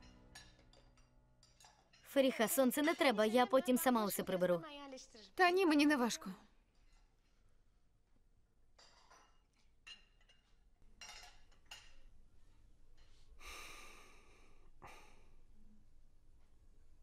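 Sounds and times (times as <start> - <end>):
faint breathy noises: 13.0 - 15.9.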